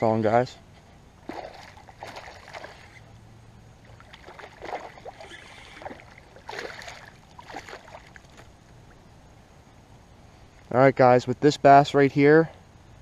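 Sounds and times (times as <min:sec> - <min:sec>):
fish splashing at water surface: 0:01.2 - 0:03.0, 0:03.8 - 0:08.5.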